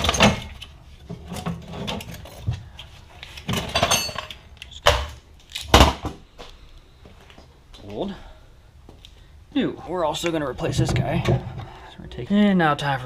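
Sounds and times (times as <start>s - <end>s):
metal clanks and knocks: 0.0s - 2.6s, 3.4s - 5.2s, 10.6s - 11.8s.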